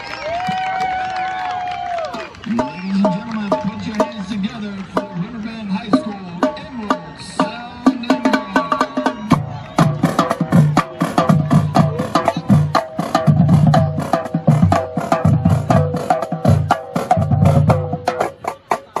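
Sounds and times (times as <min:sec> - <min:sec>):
bass drum notes: 0:05.9 - 0:18.7
tenor drums: 0:05.9 - 0:19.0.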